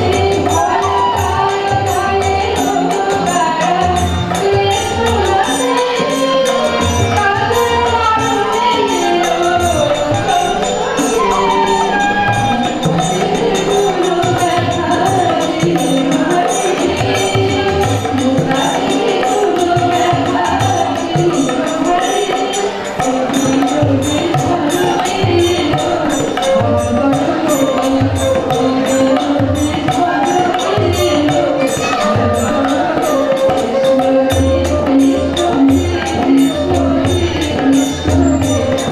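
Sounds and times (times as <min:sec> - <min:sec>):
harmonium: 0:00.0 - 0:38.9
jingling percussion: 0:00.0 - 0:38.9
woman singing into a microphone: 0:00.0 - 0:38.9.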